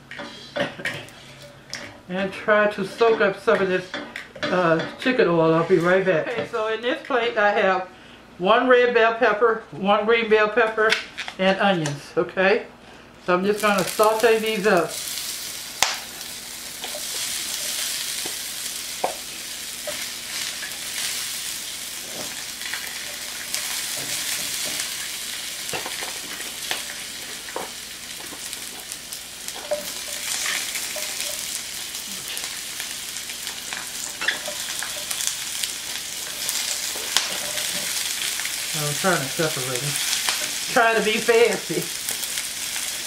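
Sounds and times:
vegetables sizzling in a pan: 0:13.4 - 0:43.0
tongs clicking on a pan: 0:29.5 - 0:31.6.

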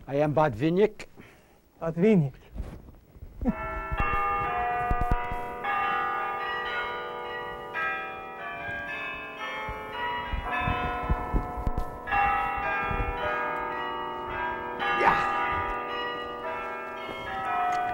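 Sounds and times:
church bells pealing: 0:03.5 - 0:17.9
low thuds: 0:09.6 - 0:13.4.

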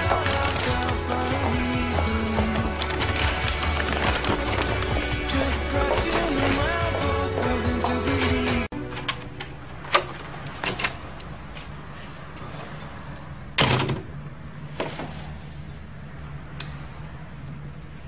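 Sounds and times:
wooden door opening and shutting: 0:00.0 - 0:11.1, 0:13.6 - 0:14.1.

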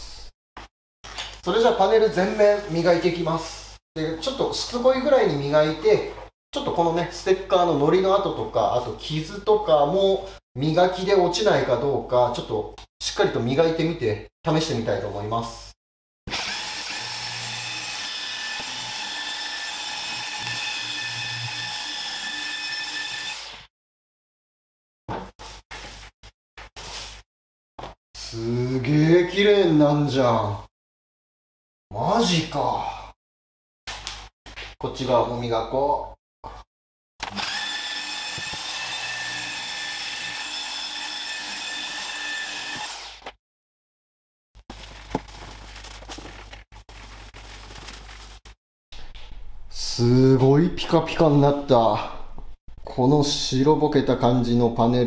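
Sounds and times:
electric polisher motor whine: 0:37.3 - 0:43.1.

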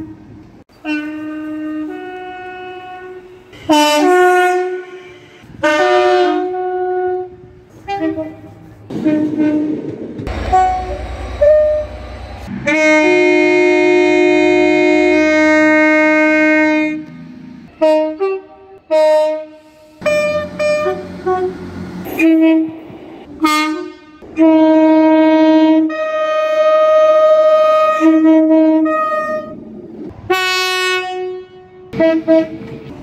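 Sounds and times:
train horn blasts: 0:00.8 - 0:29.6, 0:30.3 - 0:33.0.

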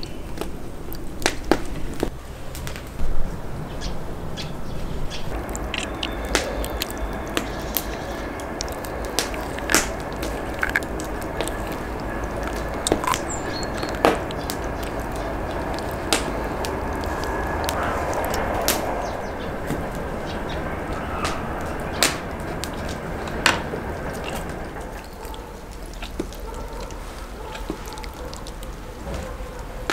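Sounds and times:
low background rumble: 0:00.0 - 0:29.9
sharp clicks: 0:05.3 - 0:19.1
wet handling of meat: 0:24.2 - 0:29.8.

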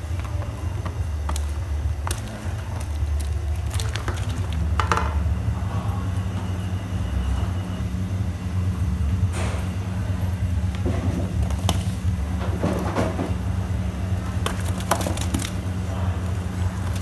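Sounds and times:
steady low rumble: 0:00.0 - 0:17.0
corn cobs knocking into pot: 0:00.1 - 0:05.2, 0:14.3 - 0:15.6.

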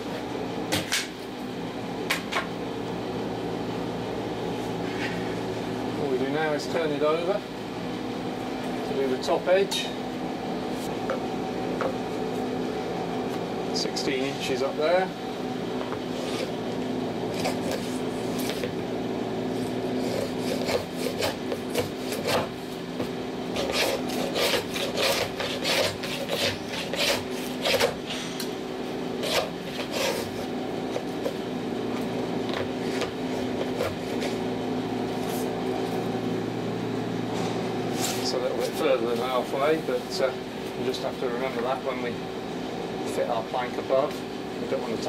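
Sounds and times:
hand plane shaving wood: 0:20.0 - 0:22.5, 0:23.5 - 0:28.0, 0:29.2 - 0:30.5.

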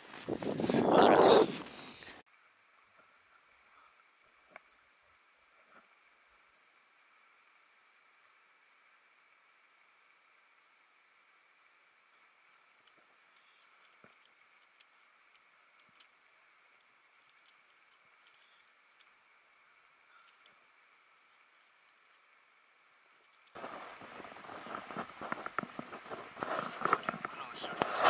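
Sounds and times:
footsteps crunching in snow: 0:00.0 - 0:02.2, 0:23.6 - 0:28.0
tent poles clicking and rattling: 0:12.2 - 0:19.2, 0:21.2 - 0:28.0
sled being hauled: 0:23.1 - 0:28.0.

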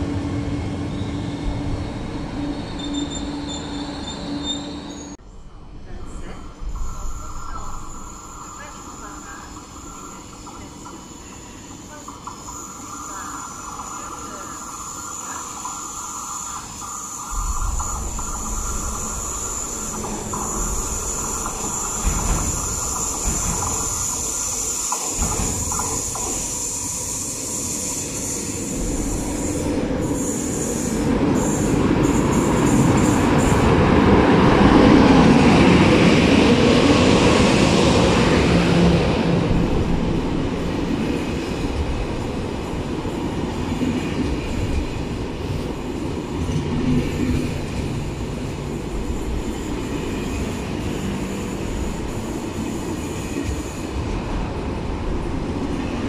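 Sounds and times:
high-speed train passing: 0:00.0 - 0:56.0
steady high squeal: 0:00.5 - 0:05.2, 0:06.1 - 0:33.6.

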